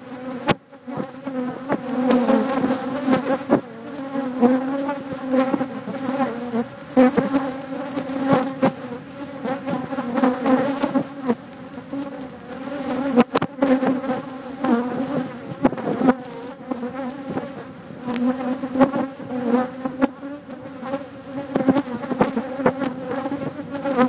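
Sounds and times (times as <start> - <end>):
bees buzzing: 0.0 - 24.0
bees striking a phone: 12.7 - 17.5, 21.4 - 24.0.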